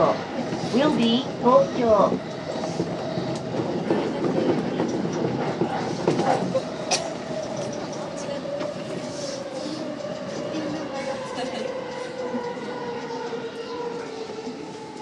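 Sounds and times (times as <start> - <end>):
wheel-on-rail rumble: 0.0 - 15.0.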